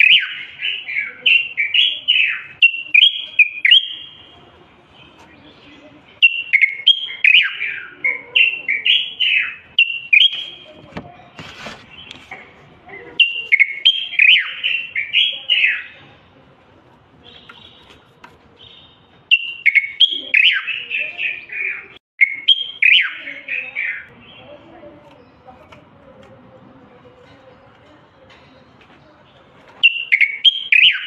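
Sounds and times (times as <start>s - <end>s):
bulbul whistled song: 0.0s - 4.3s, 6.2s - 10.7s, 13.2s - 16.0s, 18.6s - 24.1s, 29.8s - 31.0s.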